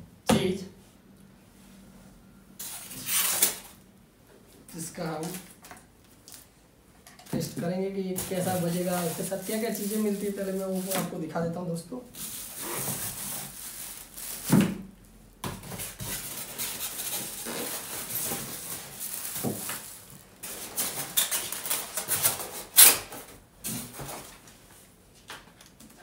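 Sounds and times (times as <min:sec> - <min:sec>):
plastic bags crinkling: 0:08.1 - 0:11.2, 0:12.1 - 0:15.0, 0:15.6 - 0:22.6.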